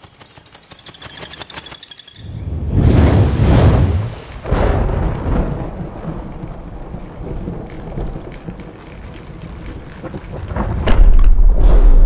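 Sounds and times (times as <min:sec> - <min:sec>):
thunder rumbling: 0:02.5 - 0:12.0
steady rain: 0:03.3 - 0:11.6.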